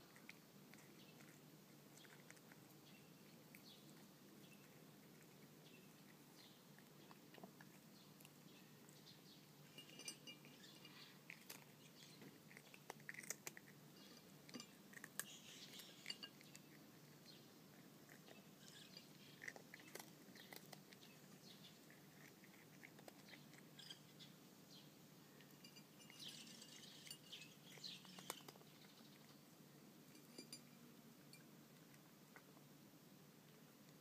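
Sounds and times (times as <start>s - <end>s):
cat chewing dry food: 0.0s - 32.8s.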